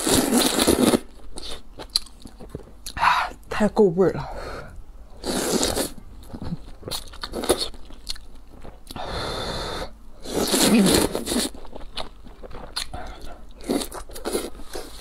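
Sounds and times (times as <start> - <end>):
chewing and mouth clicks: 0.5 - 3.0, 5.8 - 9.0, 11.1 - 15.0
person slurping noodles: 5.2 - 6.0, 9.0 - 11.6.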